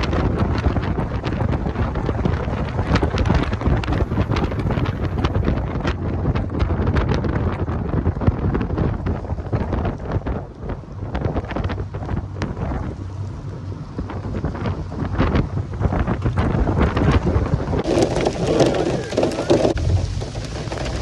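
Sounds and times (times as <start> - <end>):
car road and engine noise: 0.0 - 21.0
wind buffeting microphone: 0.0 - 21.0
short crackles: 14.0 - 21.0.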